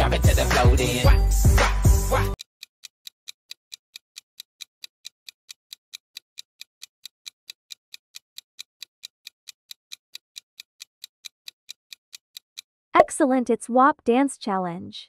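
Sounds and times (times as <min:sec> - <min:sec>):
clock ticking: 0:02.3 - 0:13.2.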